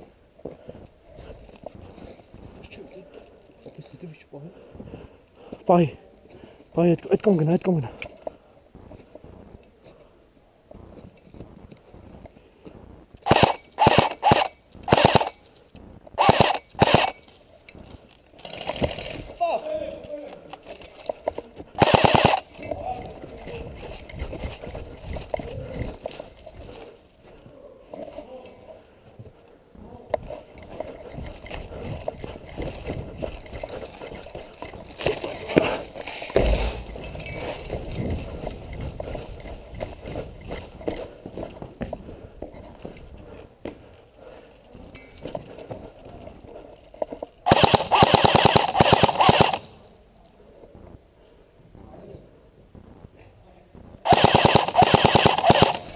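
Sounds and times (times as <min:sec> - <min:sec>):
hurried footsteps on snow and gravel: 0:00.0 - 0:13.3, 0:17.4 - 0:46.9
airsoft rifle firing bursts: 0:13.2 - 0:15.4, 0:16.2 - 0:17.2, 0:21.8 - 0:22.5, 0:47.5 - 0:49.8, 0:54.1 - 0:55.9
heavy thump: 0:36.4 - 0:37.4.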